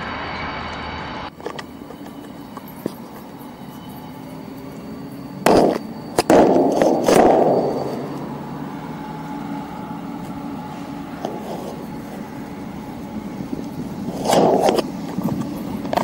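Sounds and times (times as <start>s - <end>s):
diesel train rumble: 0.0s - 16.0s
loud sudden bangs: 5.4s - 7.9s.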